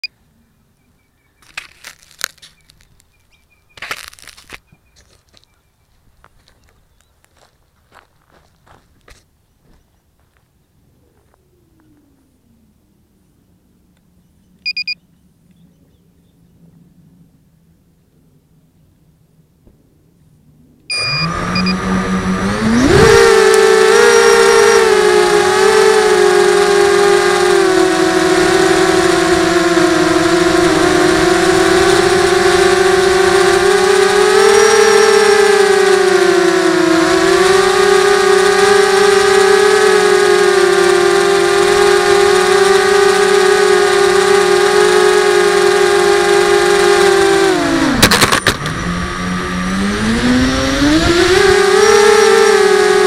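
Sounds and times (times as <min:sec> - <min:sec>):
drone motors whining: 0:20.8 - 0:53.0.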